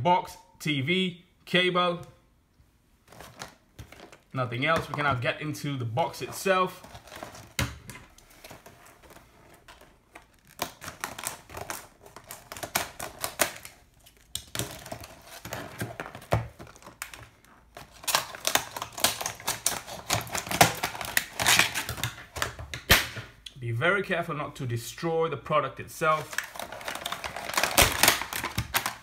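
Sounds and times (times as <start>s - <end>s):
plastic crackling: 3.0s - 5.2s, 6.1s - 23.4s, 26.1s - 29.0s
scissors snipping plastic: 26.4s - 29.0s.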